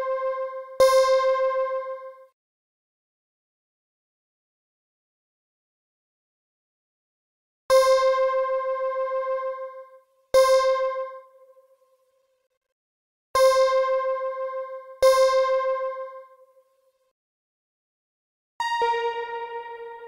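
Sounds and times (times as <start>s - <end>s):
synthesizer notes with tremolo: 18.6s - 20.0s.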